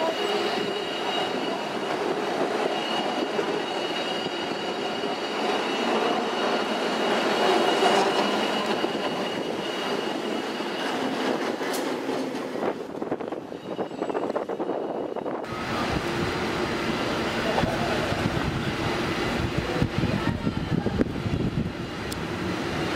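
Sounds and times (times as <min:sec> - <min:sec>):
cable car rattling rumble: 0:00.0 - 0:22.9
high whine: 0:13.2 - 0:22.9.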